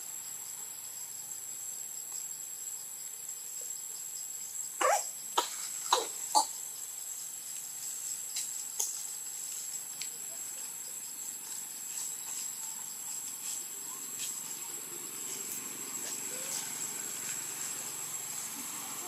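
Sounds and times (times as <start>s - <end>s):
high-pitched insect drone: 0.0s - 19.0s
faint ticks: 7.5s - 10.2s.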